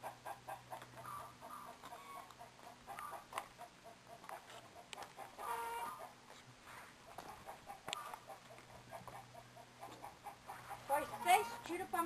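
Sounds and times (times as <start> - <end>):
chicken drawn-out call: 0.0 - 6.2
chickens clucking: 0.0 - 12.0.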